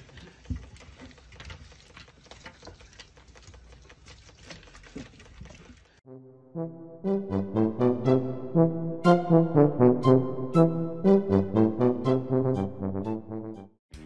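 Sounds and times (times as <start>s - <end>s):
brass note: 6.1s - 13.8s.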